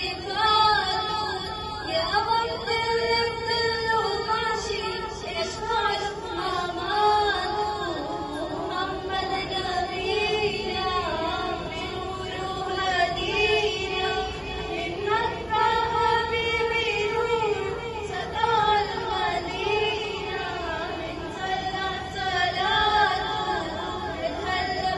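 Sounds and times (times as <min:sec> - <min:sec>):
girls singing devotional song: 0:00.0 - 0:24.9.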